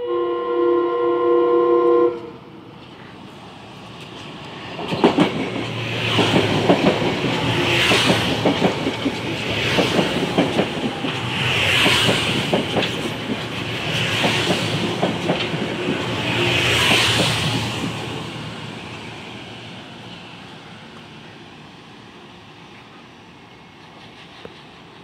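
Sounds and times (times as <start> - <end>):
rushing hiss of passing train: 2.1 - 25.0
train wheels clacking over rail joints: 3.9 - 18.2, 23.8 - 25.0.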